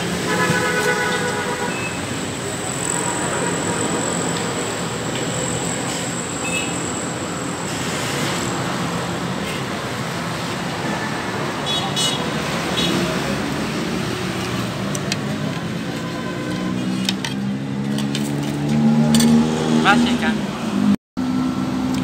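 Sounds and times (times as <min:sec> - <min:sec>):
street traffic: 0:00.0 - 0:22.0.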